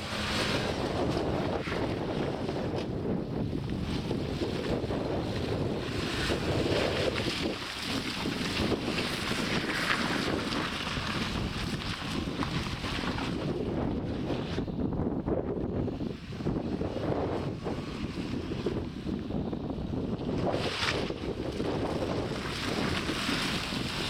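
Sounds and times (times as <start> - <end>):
tyres swishing through water: 0.0 - 14.7, 19.9 - 24.0
wind rumbling on microphone: 0.0 - 24.0.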